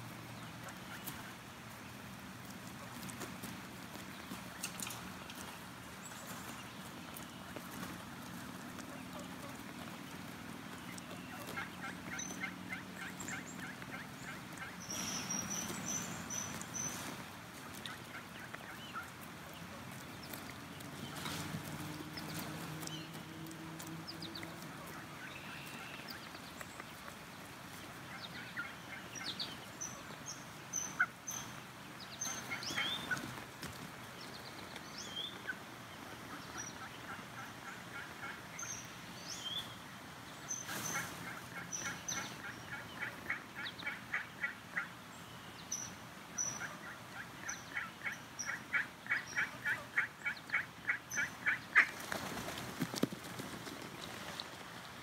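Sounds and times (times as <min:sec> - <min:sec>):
waterfowl peeping: 0:00.4 - 0:33.6, 0:34.8 - 0:52.6
waterfowl rapid clucking: 0:07.1 - 0:26.3, 0:28.0 - 0:31.6, 0:32.2 - 0:33.4, 0:35.4 - 0:38.9, 0:40.4 - 0:45.0, 0:46.4 - 0:52.6.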